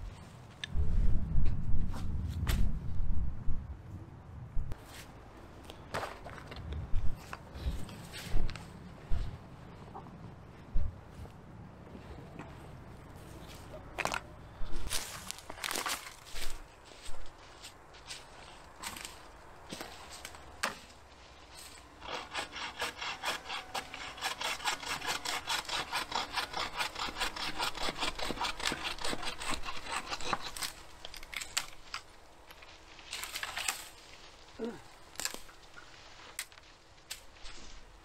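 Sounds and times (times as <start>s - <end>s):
rustle: 4.7s - 38.0s
hand saw cutting wood: 22.0s - 31.3s.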